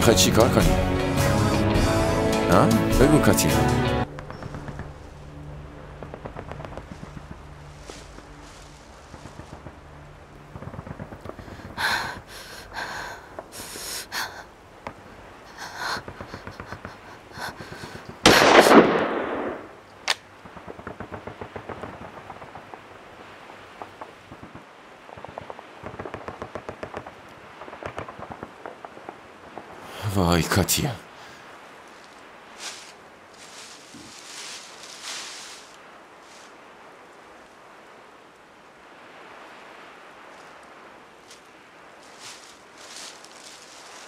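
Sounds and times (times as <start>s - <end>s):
sharp crack: 18.1s - 29.9s
single gunshots: 18.2s - 19.7s.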